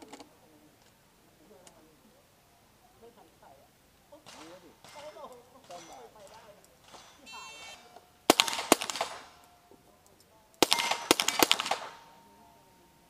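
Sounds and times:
pistol shots: 4.2s - 9.7s, 10.6s - 12.3s
steel plates ringing: 4.3s - 9.7s, 10.6s - 13.0s
shot timer beep: 7.3s - 8.0s.

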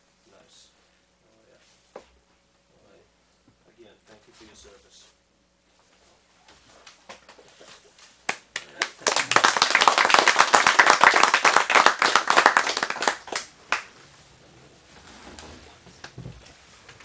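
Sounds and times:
people clapping: 8.3s - 14.0s.

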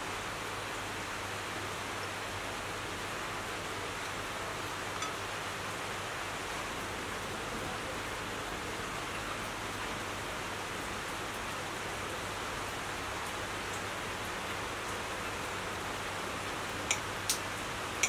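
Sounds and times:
tableware clinking: 5.0s - 5.2s.

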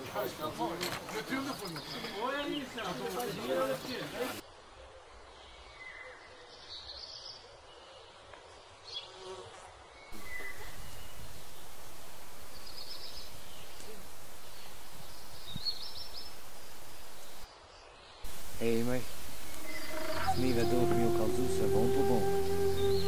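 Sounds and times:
flying insects buzzing: 10.2s - 17.5s, 18.3s - 23.0s.

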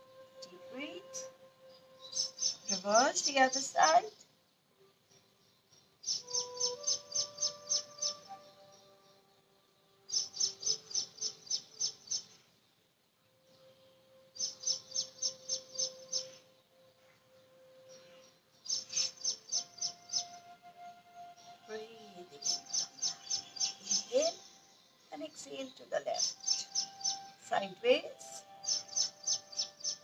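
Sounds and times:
bird calling sharp high notes: 6.0s - 8.9s.

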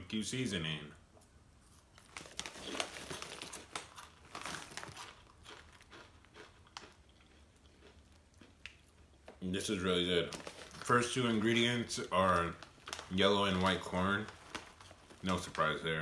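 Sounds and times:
plastic chip bag crackling: 1.7s - 8.8s, 9.6s - 16.0s
chips being crunched: 2.0s - 8.9s.

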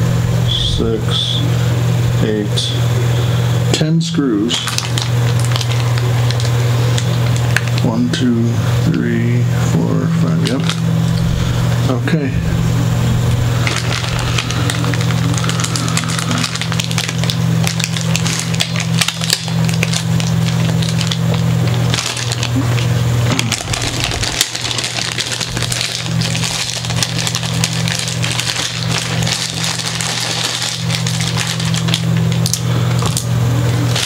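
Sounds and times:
steady low hum: 0.0s - 34.0s
packaging crinkling: 4.6s - 7.9s, 10.4s - 11.3s, 13.1s - 34.0s.

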